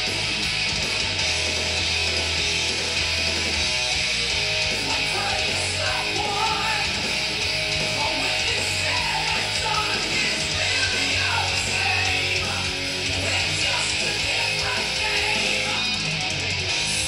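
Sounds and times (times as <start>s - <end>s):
guitar music over loudspeakers: 0.0s - 17.0s.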